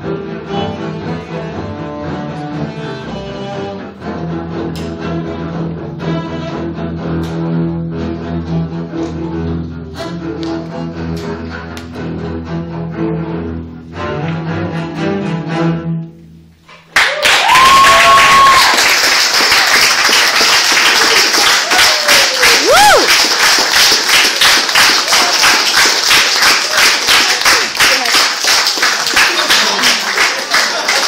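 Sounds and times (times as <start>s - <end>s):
bowed double basses: 0.0s - 16.8s
audience applause and cheering: 16.9s - 31.0s
person whooping: 17.0s - 18.9s, 21.2s - 23.2s.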